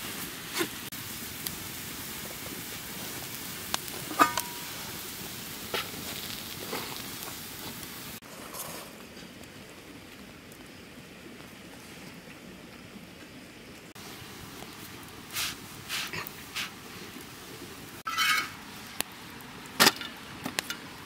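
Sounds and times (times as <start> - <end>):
food sizzling in a pan: 0.0 - 8.6, 14.0 - 19.0
faint hiss: 0.0 - 12.2, 13.8 - 21.0
metal utensil clinking: 4.1 - 4.6, 18.1 - 18.6.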